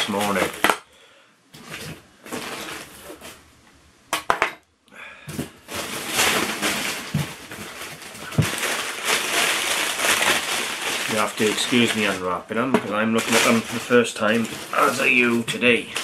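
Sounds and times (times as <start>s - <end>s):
paper wrapping rustling: 0.0s - 0.7s, 1.6s - 3.4s, 5.4s - 16.0s.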